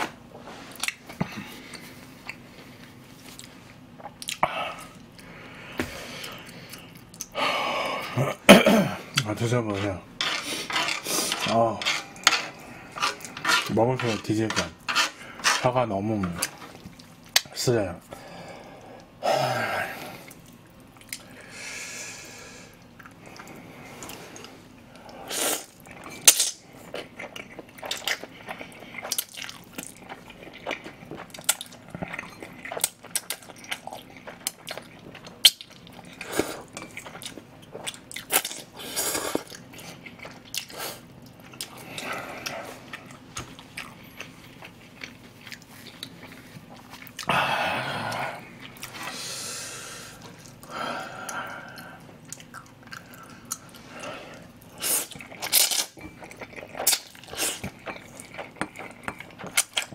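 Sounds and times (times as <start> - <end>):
wet chewing: 50.2 - 59.9.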